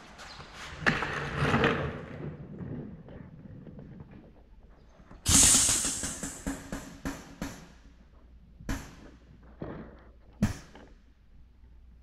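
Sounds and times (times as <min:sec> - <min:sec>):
grease pump air hiss: 0:05.3 - 0:06.7
pump exhaust puffs: 0:05.3 - 0:06.9.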